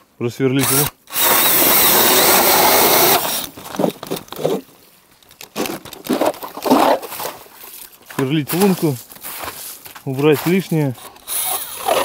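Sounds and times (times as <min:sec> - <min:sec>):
cordless drill spinning ice auger: 0:00.6 - 0:03.5, 0:11.1 - 0:12.0
auger scraping knocks in ice: 0:05.5 - 0:12.0.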